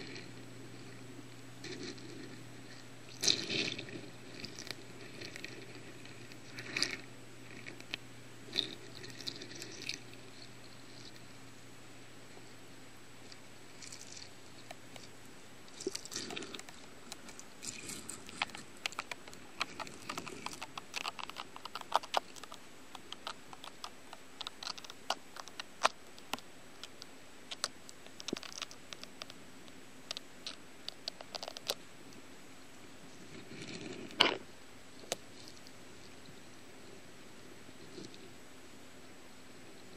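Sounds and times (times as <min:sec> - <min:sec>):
faint steady hum: 0:00.0 - 0:39.9
underwater clicks and crackles: 0:01.6 - 0:11.3, 0:13.3 - 0:31.8.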